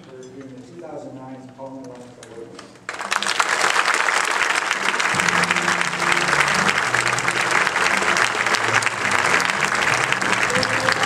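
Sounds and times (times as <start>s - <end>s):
audience applauding: 2.9s - 11.0s
music: 3.0s - 11.0s.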